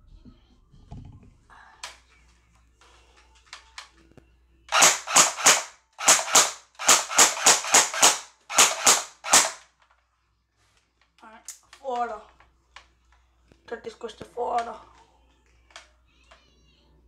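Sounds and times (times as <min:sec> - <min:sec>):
airsoft rifle firing single shots: 0:04.7 - 0:09.6.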